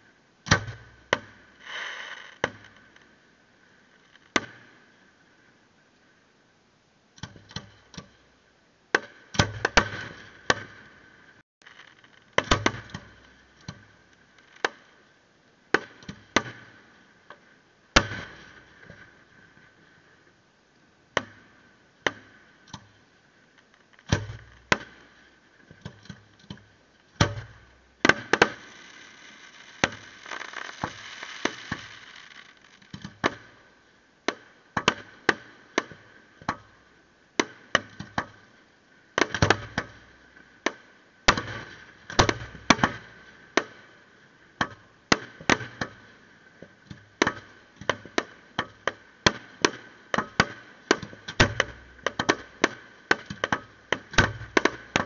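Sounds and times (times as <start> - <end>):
steady hiss: 0.0 - 55.0
fireworks bangs and booms: 28.0 - 32.8.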